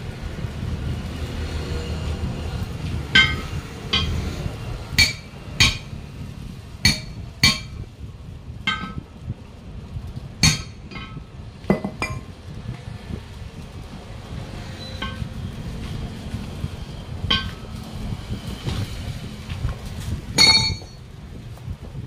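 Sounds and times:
hand tool clanking on steel rim: 0:03.2 - 0:04.3, 0:05.0 - 0:06.0, 0:06.9 - 0:07.8, 0:08.7 - 0:09.1, 0:10.4 - 0:12.3, 0:14.8 - 0:15.3, 0:17.3 - 0:17.7, 0:20.4 - 0:21.0.

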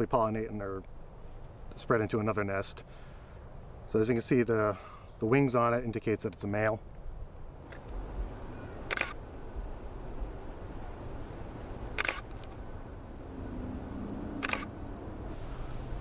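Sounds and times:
insect chirping: 0:07.2 - 0:16.0
camera shutter clicking: 0:08.8 - 0:09.2, 0:12.0 - 0:12.6, 0:14.4 - 0:14.8.

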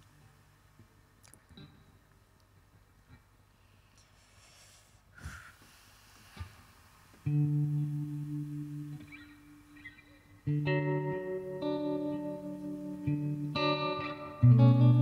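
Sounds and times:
clean electric guitar ringing: 0:07.3 - 0:15.0.

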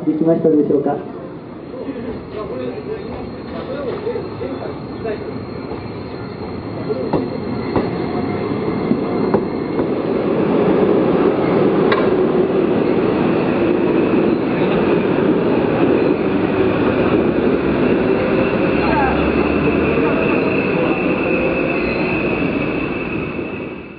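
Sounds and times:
rumble of trains running: 0:00.0 - 0:23.9
tram running on rails: 0:00.0 - 0:23.9
wheels clicking over rail joints: 0:11.9 - 0:12.2.

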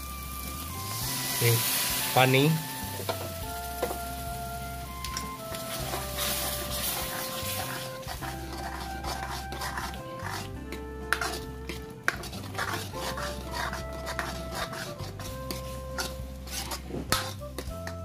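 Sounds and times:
background music sustained notes: 0:00.0 - 0:18.0
spoon stirring and scraping gravy: 0:04.9 - 0:18.0.

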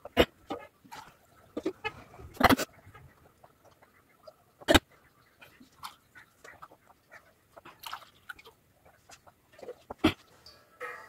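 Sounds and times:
person gulping water: 0:09.6 - 0:10.4.

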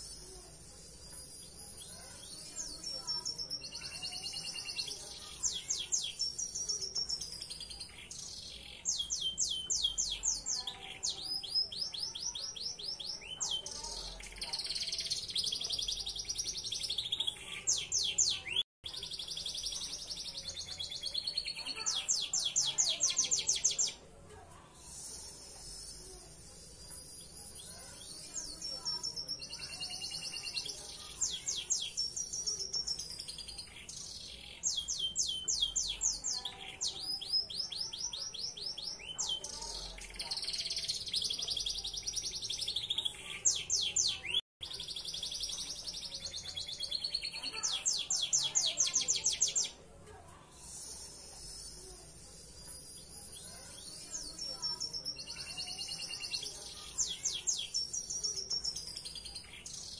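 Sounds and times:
canary singing: 0:00.0 - 0:24.0.

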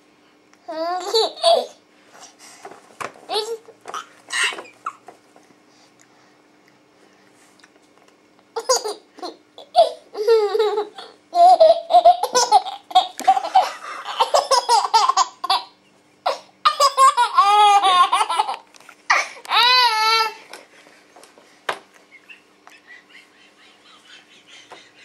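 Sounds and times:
baby laughing: 0:00.7 - 0:01.8, 0:03.3 - 0:05.0, 0:08.6 - 0:20.4.

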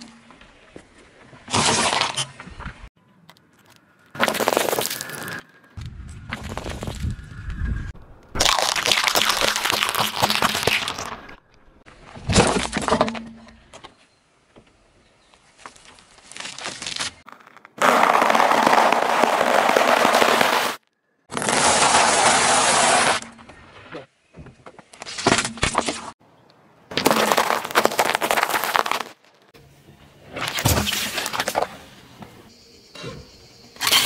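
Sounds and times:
dry pasta crunching under tyre: 0:03.2 - 0:05.4, 0:08.3 - 0:11.4, 0:15.6 - 0:23.0, 0:26.9 - 0:29.6
tyre crushing objects: 0:15.7 - 0:23.4, 0:26.9 - 0:29.4.

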